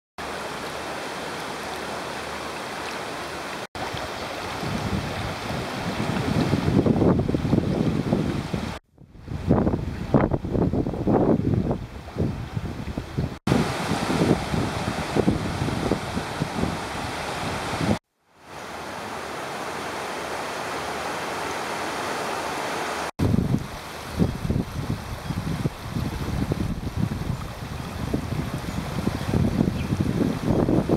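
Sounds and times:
floodwater rushing: 0:00.2 - 0:08.8, 0:12.0 - 0:30.9
wind buffeting microphone: 0:03.8 - 0:18.0, 0:23.2 - 0:30.9.

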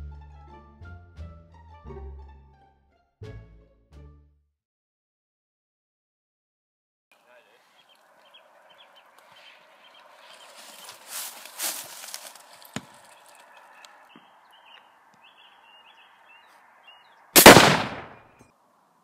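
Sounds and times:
soft rustle: 0:07.6 - 0:14.0
loud rifle shot: 0:17.4 - 0:18.3.

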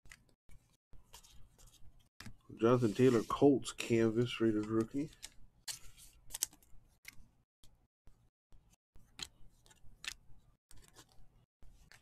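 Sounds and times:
trading cards flipping: 0:04.4 - 0:07.3, 0:09.0 - 0:12.0.

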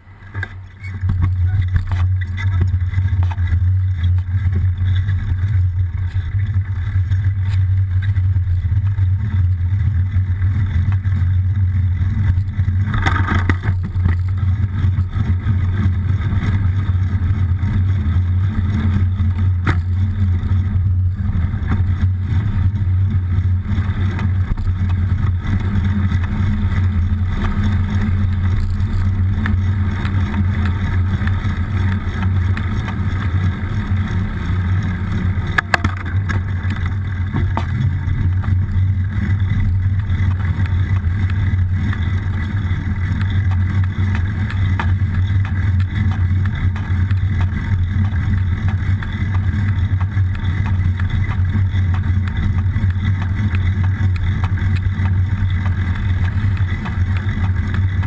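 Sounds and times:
wind and bicycle tyre rumble: 0:00.0 - 0:58.0
short rattle: 0:10.3 - 0:17.2.

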